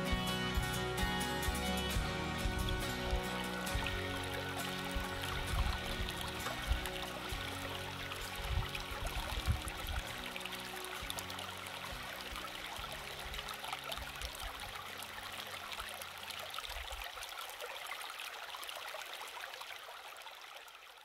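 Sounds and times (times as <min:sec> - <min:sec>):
low steady tones: 0:00.0 - 0:14.9
stream trickling over stones: 0:01.4 - 0:21.0.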